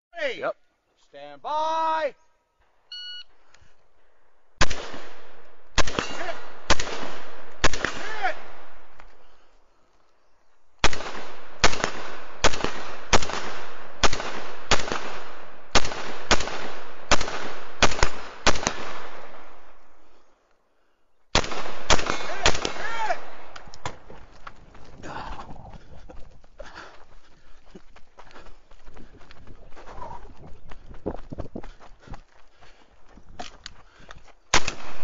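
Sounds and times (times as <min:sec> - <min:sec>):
shot timer beep: 0:02.9 - 0:03.3
rapid rifle fire: 0:04.6 - 0:08.5, 0:10.8 - 0:19.2, 0:21.4 - 0:23.5.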